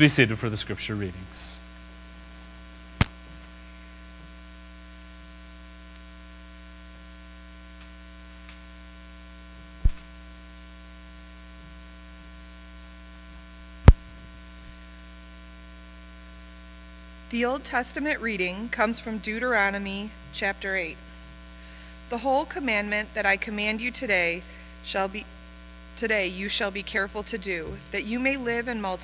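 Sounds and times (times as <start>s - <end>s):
electrical mains hum: 0.0s - 29.0s
microphone handling knocks: 13.9s - 14.2s.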